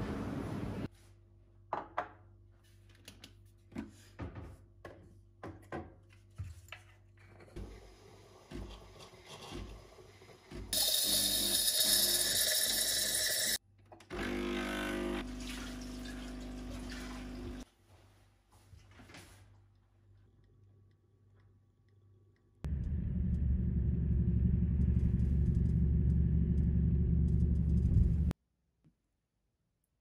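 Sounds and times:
espresso pump humming: 0:10.8 - 0:13.6.

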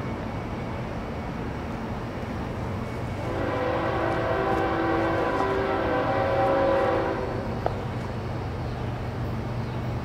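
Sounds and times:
train rumbling past: 0:00.0 - 0:10.0
locomotive air horn chord: 0:03.2 - 0:07.6.

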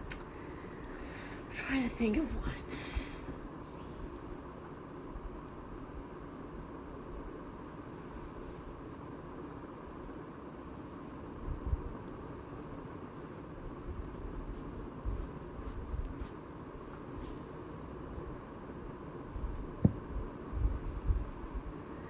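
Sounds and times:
steady background hiss: 0:00.0 - 0:22.0
soft low thumps: 0:19.4 - 0:21.3.

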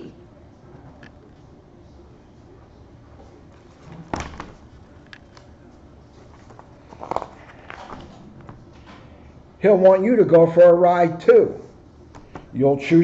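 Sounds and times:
low room noise: 0:00.0 - 0:13.0
paper rustling: 0:06.1 - 0:09.0.

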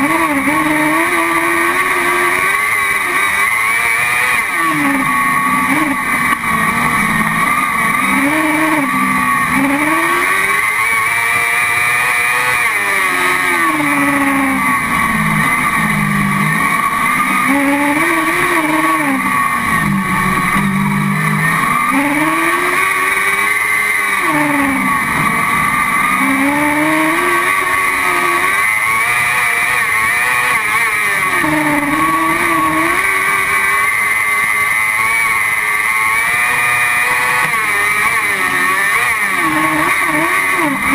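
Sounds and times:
race car engine revving: 0:00.0 - 0:40.9.

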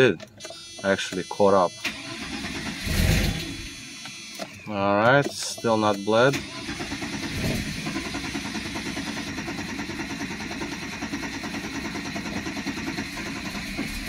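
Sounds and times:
car engine idling: 0:05.2 - 0:14.0.

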